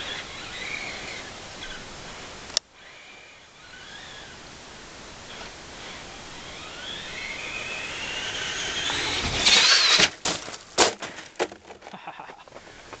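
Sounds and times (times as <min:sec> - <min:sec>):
electric motor whining: 0:00.0 - 0:10.2
toy truck crashing thuds: 0:06.8 - 0:11.9.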